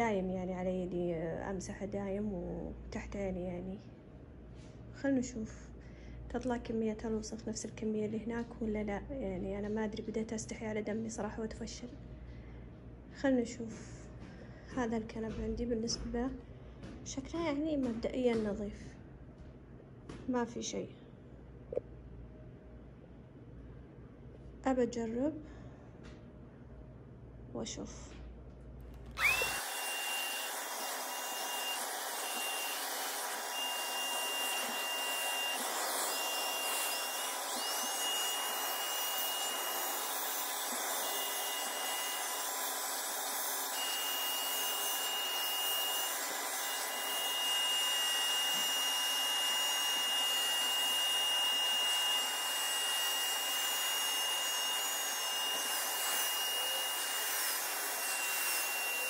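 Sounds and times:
suction motor whine: 29.1 - 59.0.

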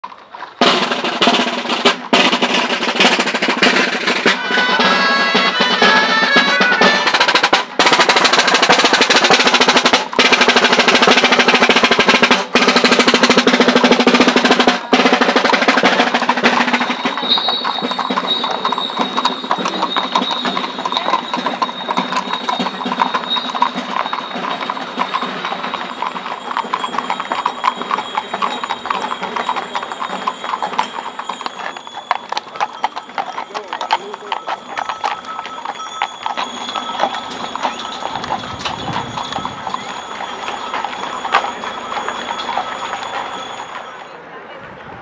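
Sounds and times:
wooden marching drum beating: 0.0 - 44.1
light clatter with high ringing: 16.4 - 44.2.

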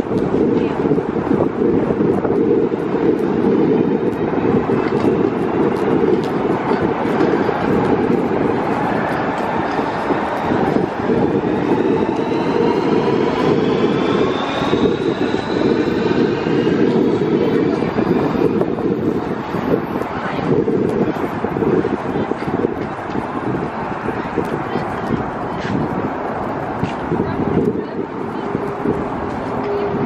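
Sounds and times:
train rumbling: 0.0 - 30.0
train traction drive whine: 0.0 - 30.0.

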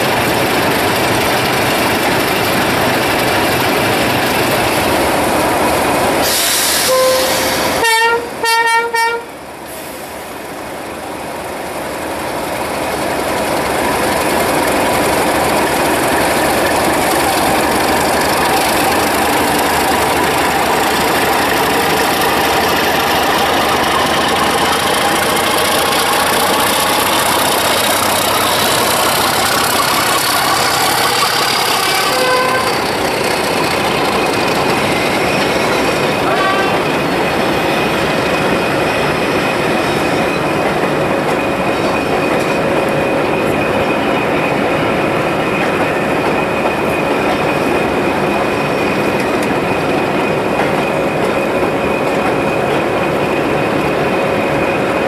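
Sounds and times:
locomotive horn blasts: 6.8 - 9.3, 31.1 - 33.0, 36.2 - 36.9
diesel engines running: 12.2 - 37.3.

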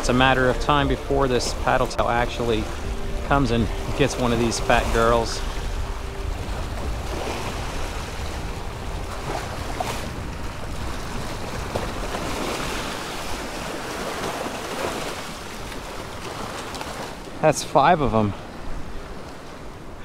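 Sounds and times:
wind rumbling on microphone: 0.0 - 17.4
small waves splashing against rocks: 9.1 - 17.4.

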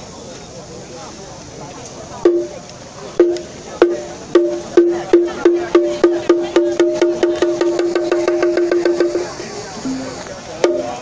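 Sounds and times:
drum beating into a roll: 2.2 - 2.6, 3.2 - 11.0.

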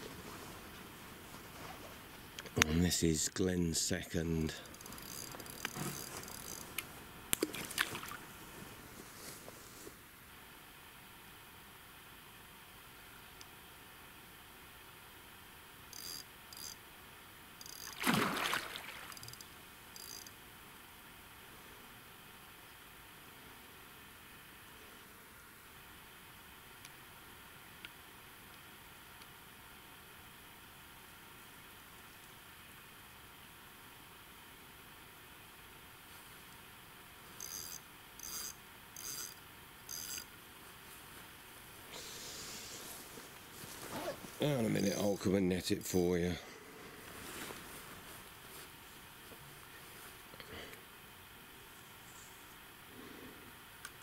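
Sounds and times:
steady rustling: 4.5 - 10.0, 42.6 - 44.4
fishing reel whirring: 4.6 - 6.8, 15.9 - 16.8, 17.6 - 18.0, 19.0 - 20.3, 37.4 - 40.3.

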